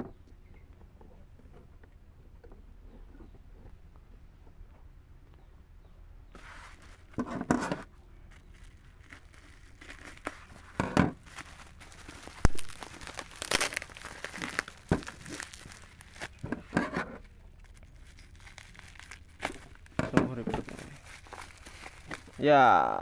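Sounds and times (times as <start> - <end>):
bubble wrap crinkling and tearing: 8.3 - 23.0
scissors cutting plastic: 11.4 - 17.2.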